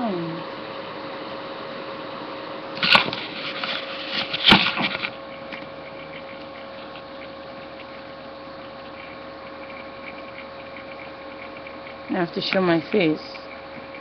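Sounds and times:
steady hum: 0:00.0 - 0:14.0
camera handling rustle: 0:02.8 - 0:05.2.

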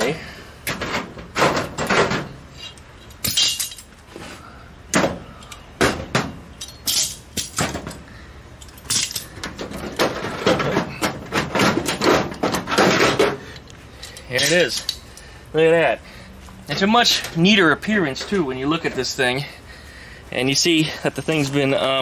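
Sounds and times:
tools clattering together: 0:00.6 - 0:04.0, 0:04.9 - 0:08.0, 0:08.6 - 0:15.0.

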